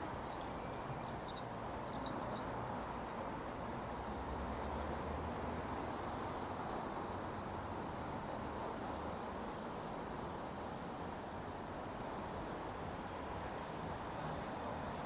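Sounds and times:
distant road traffic hum: 0.0 - 10.7.

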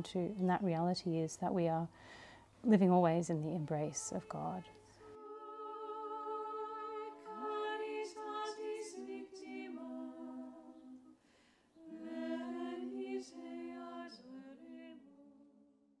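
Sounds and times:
women singing in harmony: 3.5 - 11.2, 11.8 - 15.4.

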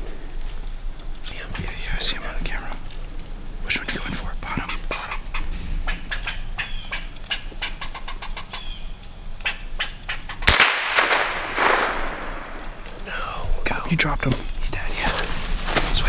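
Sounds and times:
faint clicks: 0.4 - 5.4
rifle shot with echo: 10.4 - 13.0.

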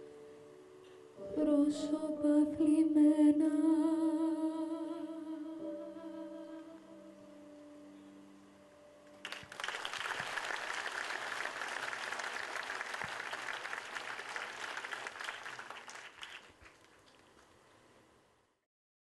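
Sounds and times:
audience applauding: 9.2 - 17.6.

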